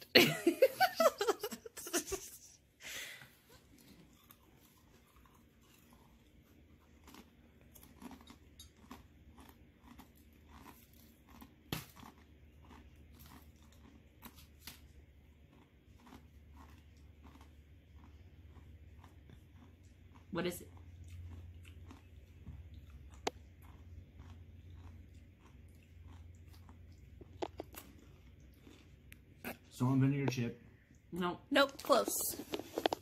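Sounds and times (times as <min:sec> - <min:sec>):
person chewing crunchy chip: 0:03.6 - 0:29.8.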